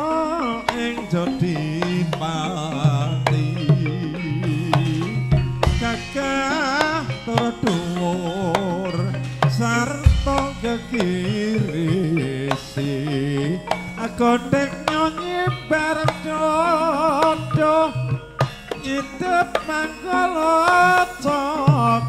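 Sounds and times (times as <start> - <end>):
gamelan music: 0.0 - 22.0
person singing wavering melody: 0.0 - 22.0
sharp percussion strikes: 0.0 - 22.0
deep drum thump: 10.1 - 10.9.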